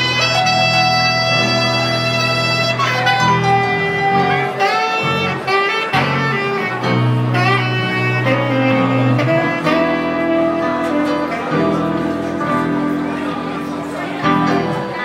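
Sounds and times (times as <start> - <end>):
electric guitar: 0.0 - 15.0
saxophone melody: 0.0 - 15.0
upright double bass: 0.0 - 15.0.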